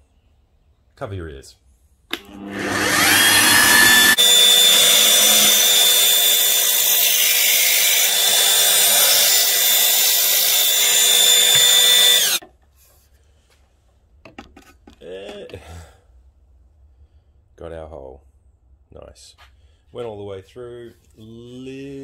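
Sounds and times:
drill bit screeching through steel: 0:02.6 - 0:12.4.

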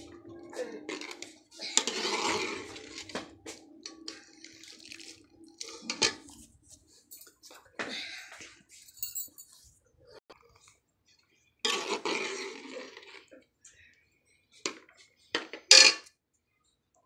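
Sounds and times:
ladle scraping pot: 0:00.7 - 0:06.5, 0:11.7 - 0:13.3
metal clinks: 0:08.9 - 0:09.6.

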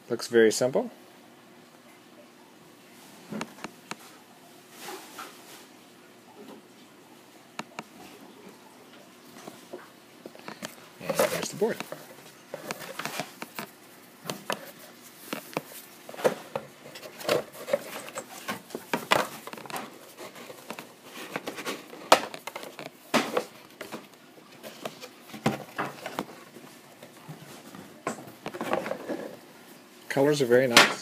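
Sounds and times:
cardboard game board handling: 0:10.4 - 0:26.6.

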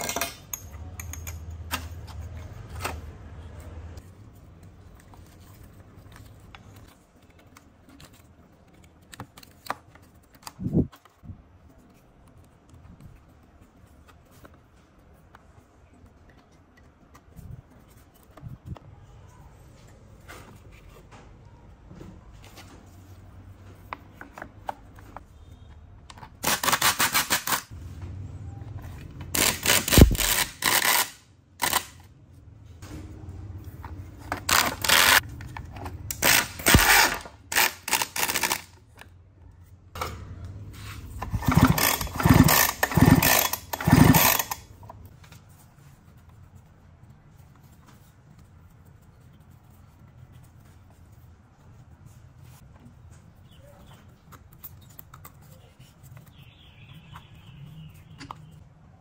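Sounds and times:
power tool rattling bursts: 0:36.2 - 0:38.7, 0:41.3 - 0:44.6.

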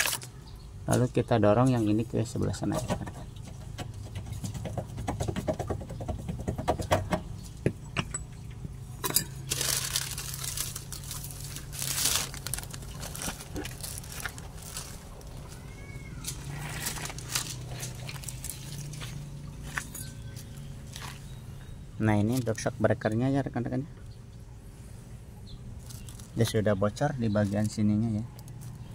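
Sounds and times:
metal clinks and knocks: 0:02.8 - 0:09.7
rustling scrapes: 0:16.2 - 0:21.3.

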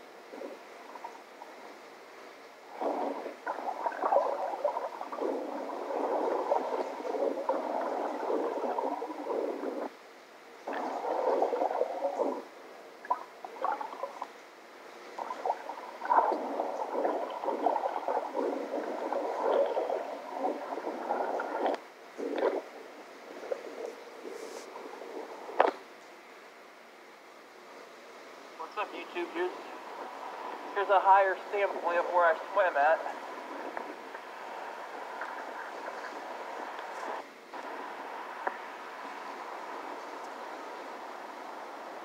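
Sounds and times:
water sloshing and gurgling: 0:00.0 - 0:26.1, 0:27.5 - 0:42.0.

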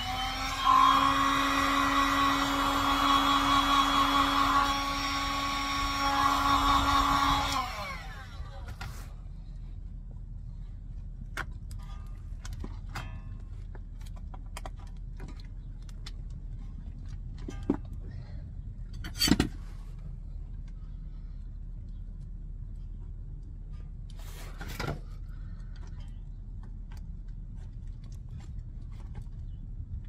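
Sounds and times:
steady low rumble: 0:06.5 - 0:30.0.

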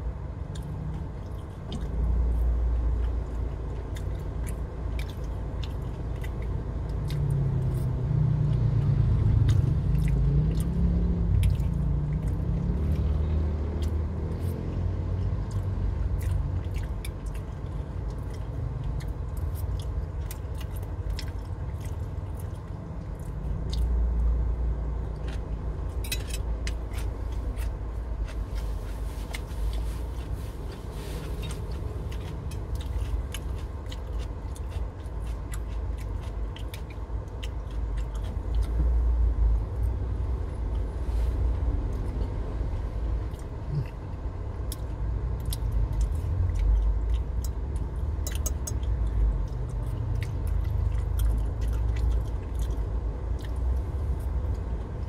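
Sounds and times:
low car cabin rumble: 0:00.0 - 0:55.0
man chewing food: 0:00.4 - 0:41.0, 0:41.6 - 0:55.0.

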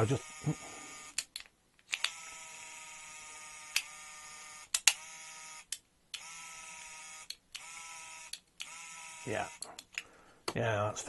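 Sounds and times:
small electric motor whining: 0:00.0 - 0:01.2, 0:01.9 - 0:09.7
sharp clicks: 0:04.7 - 0:05.1, 0:05.7 - 0:08.8.

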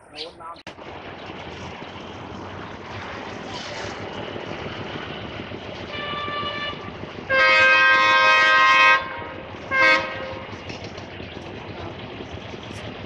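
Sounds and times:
oncoming train noise: 0:00.7 - 0:13.0
diesel locomotive horn: 0:05.7 - 0:10.6.

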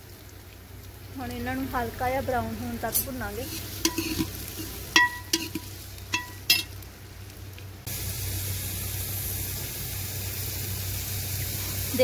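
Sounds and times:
onions sizzling in oil: 0:00.0 - 0:12.0
ladle knocking on metal pot: 0:04.9 - 0:06.7.

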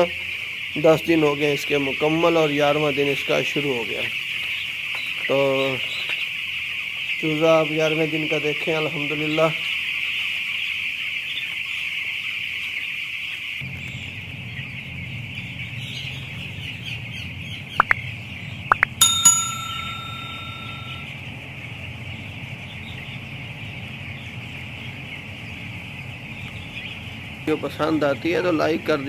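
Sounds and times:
chicks peeping: 0:00.0 - 0:29.0
sharp clicks: 0:18.7 - 0:19.0
bell-like ding: 0:19.0 - 0:21.1.

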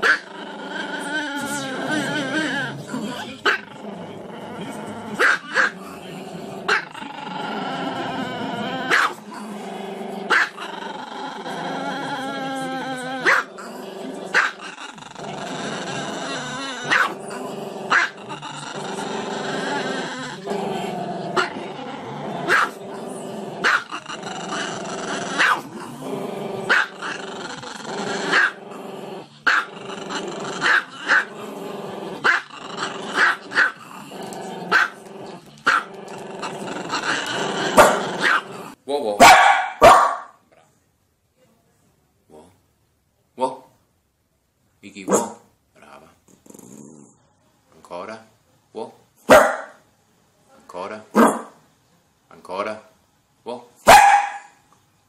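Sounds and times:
dog yipping: 0:39.2 - 0:40.3, 0:53.9 - 0:54.5.

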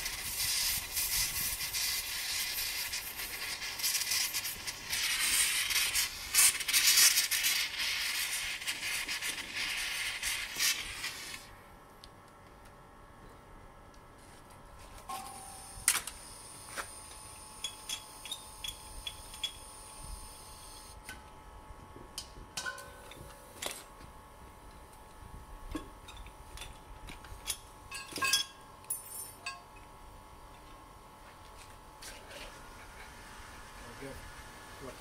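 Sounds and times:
faint steady whine: 0:10.4 - 0:35.0.

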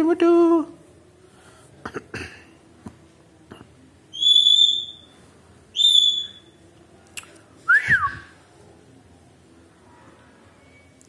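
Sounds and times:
parakeet whistling: 0:04.1 - 0:06.6.

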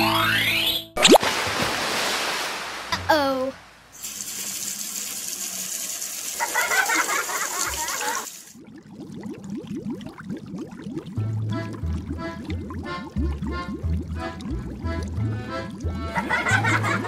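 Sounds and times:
gushing water: 0:01.1 - 0:17.0
water bubbling: 0:06.7 - 0:17.0.

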